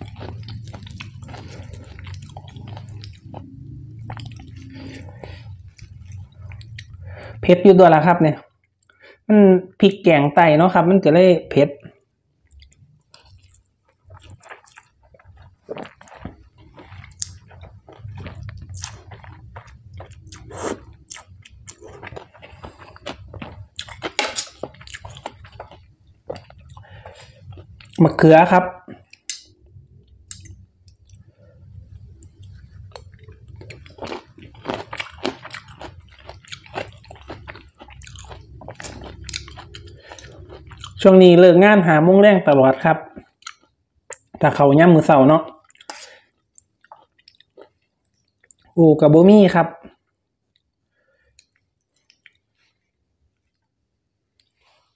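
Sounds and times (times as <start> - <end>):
person slurping and chewing noodles: 0.0 - 7.4, 12.5 - 28.2, 28.9 - 41.2
low steady hum: 0.0 - 54.9.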